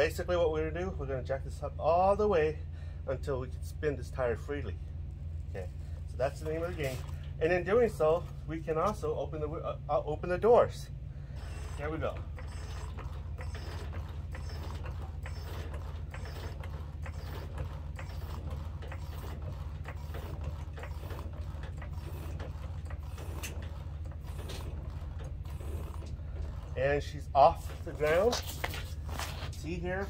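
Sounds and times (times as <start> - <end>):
steady low hum: 0.0 - 30.0
floor jack clicking and creaking: 11.5 - 30.0.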